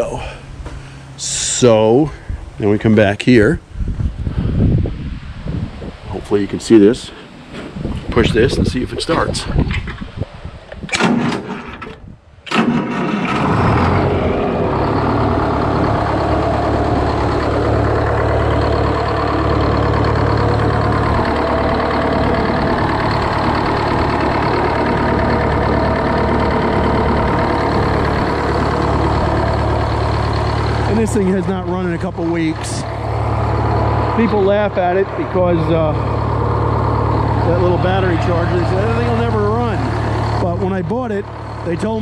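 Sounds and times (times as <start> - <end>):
diesel engine idling: 0.0 - 2.5, 12.5 - 42.0
diesel engine starter cranking: 10.8 - 42.0.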